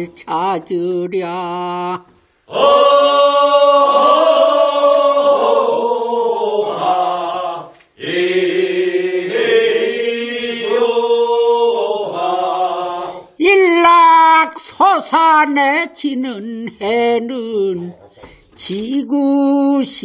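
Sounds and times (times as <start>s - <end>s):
group singing a work song: 2.4s - 13.4s.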